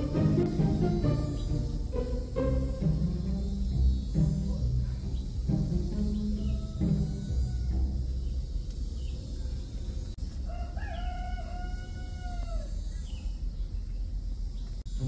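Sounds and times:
steady low rumble: 0:00.0 - 0:10.4
rooster crowing: 0:06.0 - 0:08.4, 0:10.4 - 0:12.9.

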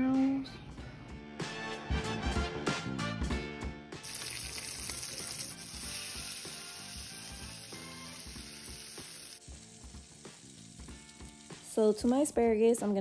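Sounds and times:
asparagus sizzling in a frying pan: 0:04.0 - 0:13.0.

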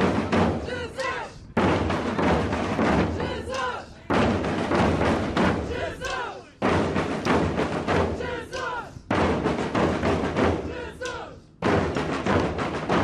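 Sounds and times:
bass and snare drums playing: 0:00.0 - 0:06.0, 0:06.6 - 0:11.0, 0:11.6 - 0:13.0
group shout: 0:00.6 - 0:01.4, 0:03.1 - 0:04.0, 0:05.6 - 0:06.6, 0:08.2 - 0:09.0, 0:10.6 - 0:11.4.

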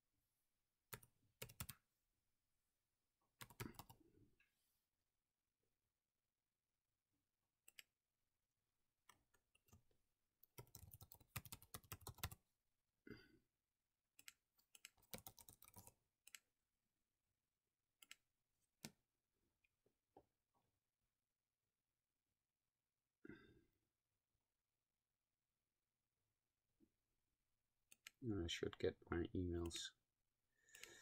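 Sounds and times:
faint keyboard typing: 0:00.9 - 0:01.8, 0:03.4 - 0:04.1, 0:09.0 - 0:12.4, 0:14.2 - 0:16.5.

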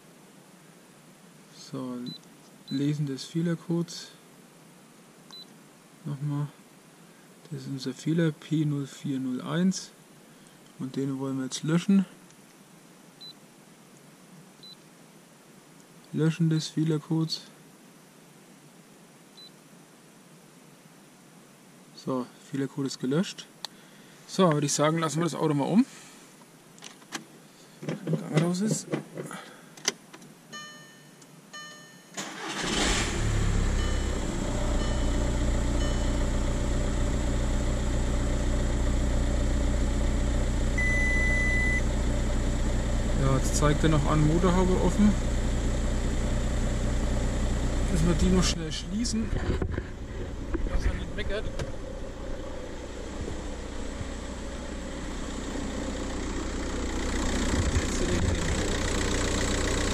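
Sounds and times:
short beeps: 0:30.5 - 0:32.2, 0:33.8 - 0:34.2, 0:34.8 - 0:35.2, 0:35.8 - 0:36.2, 0:40.8 - 0:41.9
diesel engine starting and idling: 0:32.2 - 0:59.9
steady beep: 0:33.8 - 0:34.2, 0:34.8 - 0:36.2, 0:40.8 - 0:41.9.

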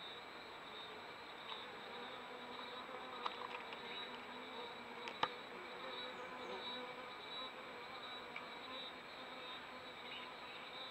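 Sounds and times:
insects buzzing: 0:00.0 - 0:10.9
faint ticks: 0:05.0 - 0:05.4, 0:08.3 - 0:08.5.

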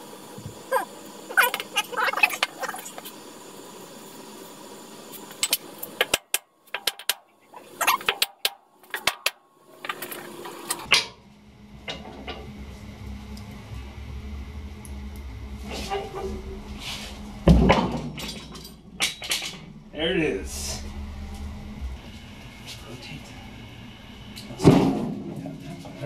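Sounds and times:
faint low hum: 0:10.9 - 0:26.0.

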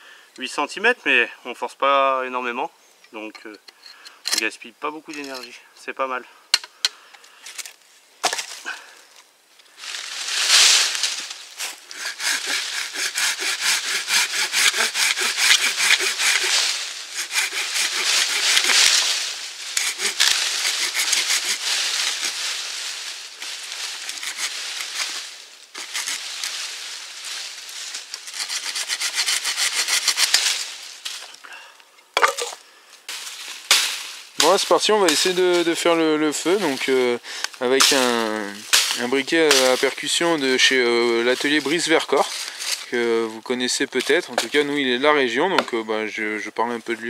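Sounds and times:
hand saw cutting a log: 0:11.6 - 0:22.5, 0:23.9 - 0:25.2, 0:25.8 - 0:26.5, 0:28.1 - 0:30.6.

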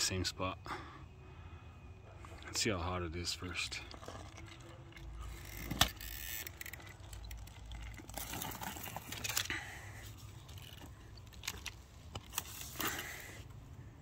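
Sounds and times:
toy car handling clicks: 0:05.4 - 0:09.6.

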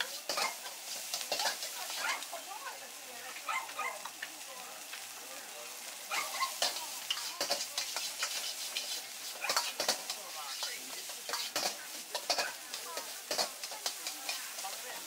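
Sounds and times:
metal ladle scraping a wok: 0:00.0 - 0:02.0, 0:06.2 - 0:15.0
sizzling hiss: 0:00.0 - 0:15.0.

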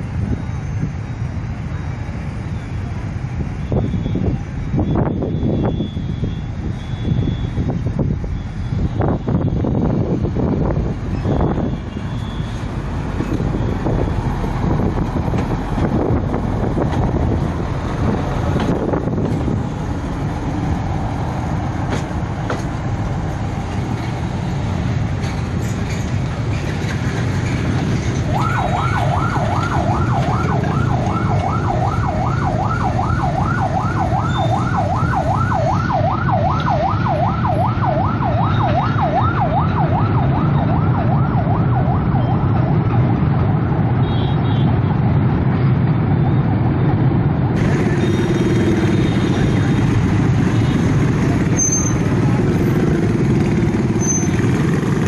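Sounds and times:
electronic warning alarm warbling: 0:28.3 - 0:39.4.

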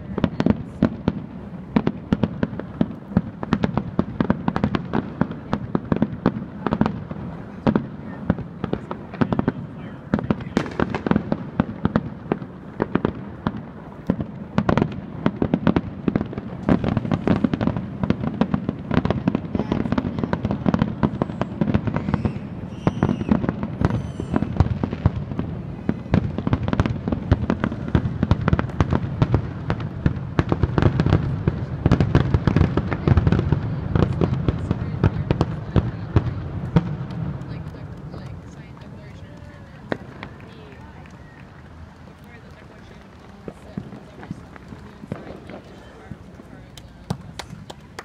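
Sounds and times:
fireworks bursts and crackling bangs: 0:00.0 - 0:48.0.

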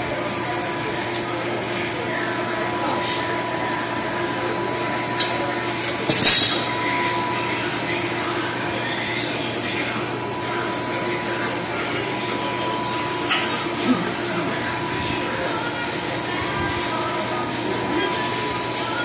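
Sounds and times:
steady background hum: 0:00.0 - 0:19.0
metal pipes clanking: 0:06.1 - 0:06.8, 0:13.2 - 0:13.6.

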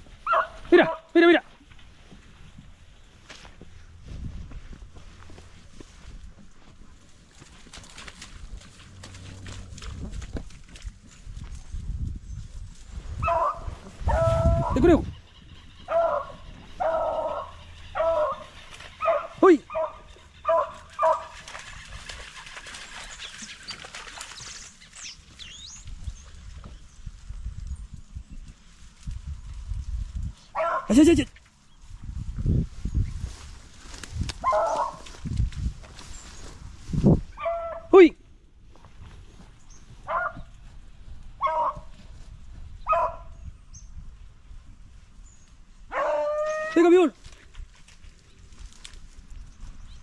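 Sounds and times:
faint rustle with clicks: 0:01.5 - 0:13.2, 0:20.1 - 0:30.5, 0:47.1 - 0:50.0
high chirping calls: 0:14.2 - 0:21.1
dog baying: 0:15.8 - 0:21.3, 0:34.4 - 0:35.0.

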